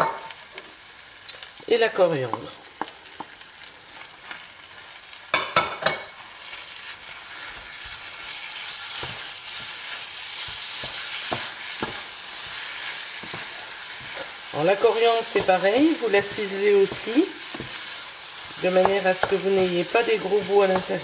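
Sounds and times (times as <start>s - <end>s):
meat sizzling in a frying pan: 0.0s - 21.0s
wooden spatula scraping pan: 7.4s - 21.0s
spatula tapping on pan: 18.7s - 19.9s.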